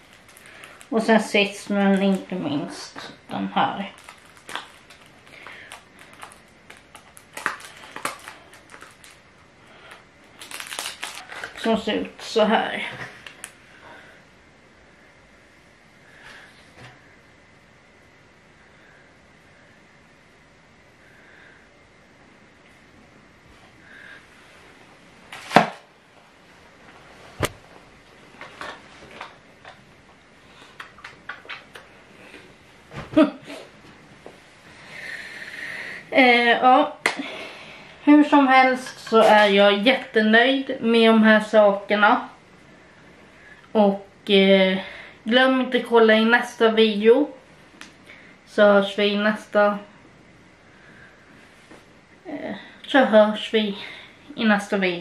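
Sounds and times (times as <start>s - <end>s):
packaging clicks and rustles: 0.0s - 0.9s, 3.8s - 9.2s, 9.9s - 11.6s.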